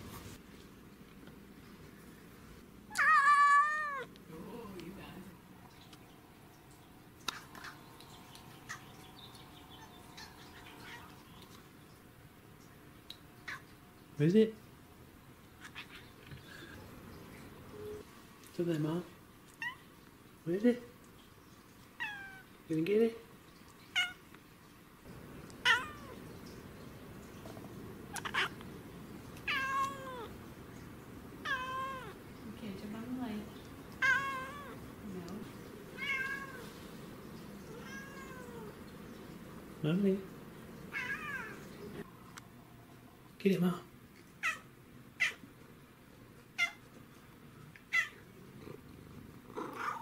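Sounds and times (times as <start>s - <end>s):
cat meowing: 2.9s - 4.1s, 10.2s - 11.2s, 22.0s - 22.5s, 23.9s - 24.2s, 25.6s - 26.2s, 28.1s - 28.6s, 29.4s - 30.4s, 31.4s - 32.2s, 34.0s - 34.8s, 36.0s - 36.7s, 37.6s - 38.8s, 40.9s - 41.7s, 47.8s - 48.2s, 49.6s - 50.0s.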